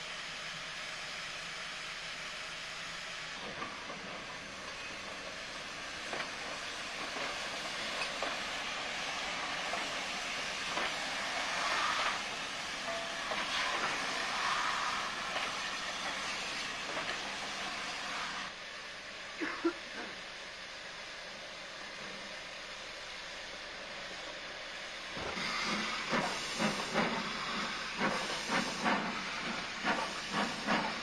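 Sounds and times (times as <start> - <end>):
steam locomotives hissing: 0.0 - 31.0.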